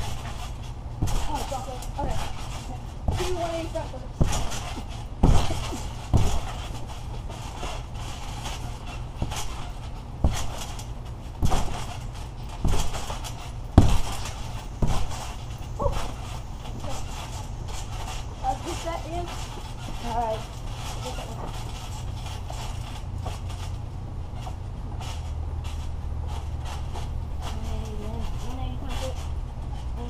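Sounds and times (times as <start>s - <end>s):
feet thumping on trampoline: 0.0s - 30.0s.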